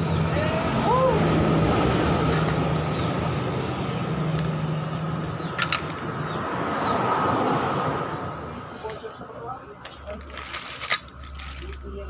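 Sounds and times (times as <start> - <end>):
engine-like drone: 0.0 - 7.6.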